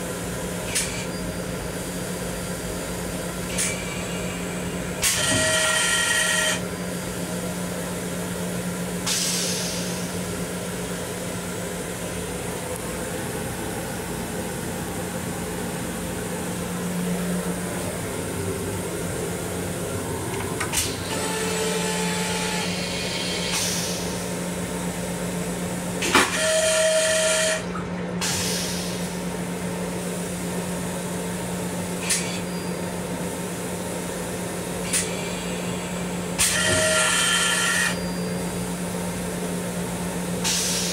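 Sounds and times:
steady hum: 6.3 - 25.9.

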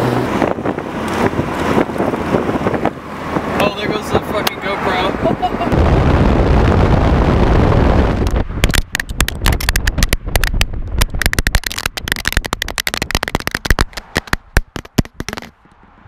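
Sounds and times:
wind rushing over microphone: 0.0 - 16.0
camera tumbling on asphalt: 6.3 - 15.9.

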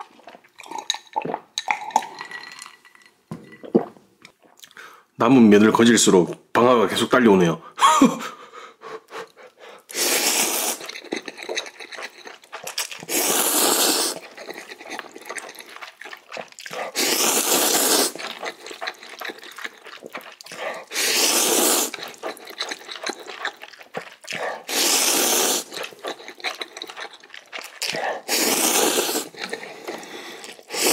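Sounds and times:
person slurping noodles: 9.9 - 30.9
soft chewing: 10.7 - 20.9, 21.8 - 24.7, 25.6 - 28.3, 29.0 - 30.7.

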